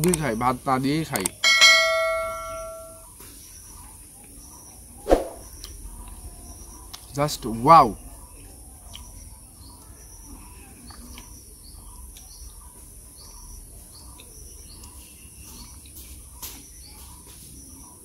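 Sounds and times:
bird chirps: 1.1s - 3.0s.

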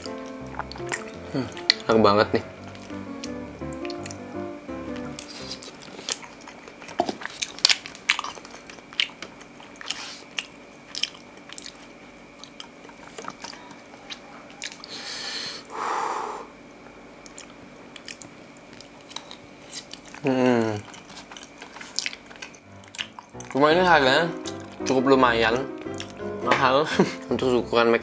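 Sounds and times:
chewing soft food: 0.0s - 2.0s, 4.9s - 15.0s, 16.7s - 23.6s, 24.3s - 25.0s, 25.6s - 26.3s
long hissing sound: 14.9s - 16.6s
wet mouth clicks: 17.2s - 20.2s, 20.8s - 23.5s.

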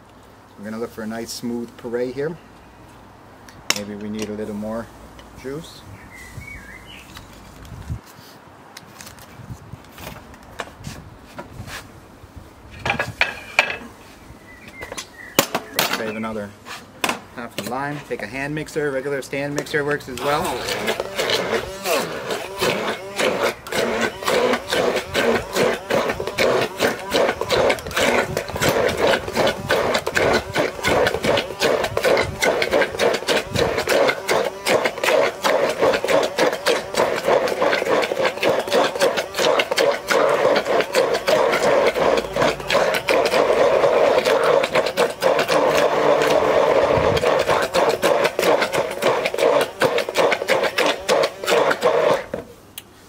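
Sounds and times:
immersion blender whirring: 20.1s - 52.5s.

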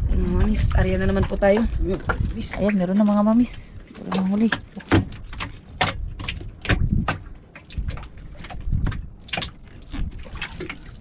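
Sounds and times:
low rumble: 0.0s - 3.9s.

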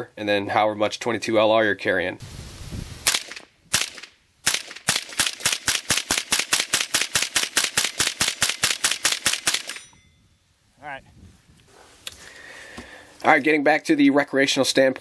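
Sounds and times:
rifle shots: 3.0s - 9.8s.

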